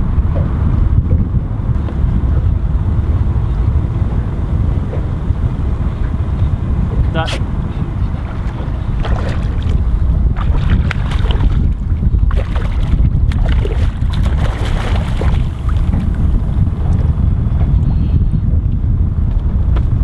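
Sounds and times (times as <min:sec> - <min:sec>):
wind buffeting microphone: 0:00.0 - 0:20.0
water splashing and slapping: 0:06.9 - 0:17.0.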